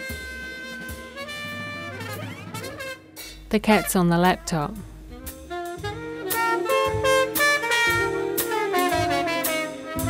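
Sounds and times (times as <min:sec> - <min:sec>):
horn melody: 0:00.0 - 0:10.0
steady drum beat: 0:00.0 - 0:10.0.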